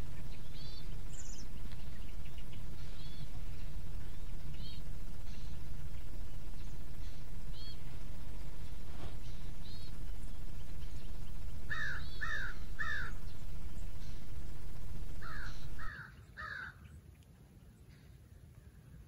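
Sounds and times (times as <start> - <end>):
steady low rumble: 0.0 - 19.0
crow cawing: 11.6 - 13.2, 15.1 - 16.8.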